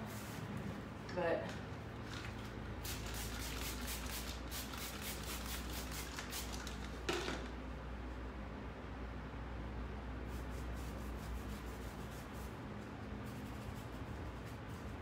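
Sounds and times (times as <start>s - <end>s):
spray bottle hissing sprays: 2.8s - 7.1s
plastic bottle knocking on floor: 7.1s - 7.5s.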